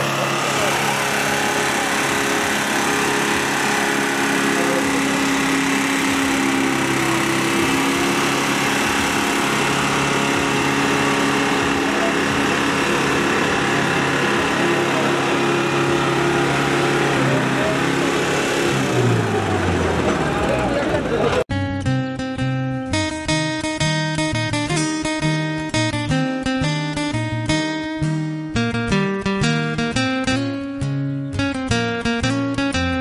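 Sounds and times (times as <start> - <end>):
diesel tractor engines droning: 0.0 - 21.5.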